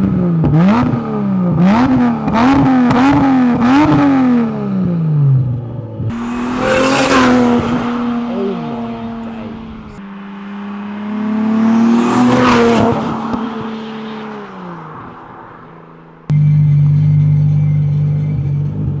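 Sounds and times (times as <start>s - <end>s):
car engine revving: 0.0s - 19.0s
car engine idling: 4.8s - 12.4s.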